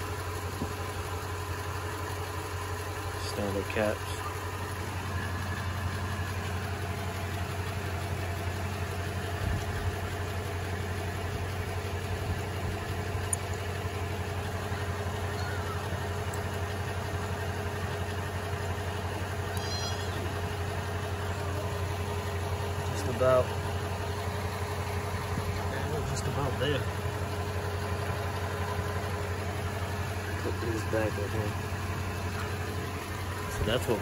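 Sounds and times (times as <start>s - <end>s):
vehicle engine idling: 0.0s - 34.0s
high chirp: 15.3s - 16.0s, 19.5s - 20.3s.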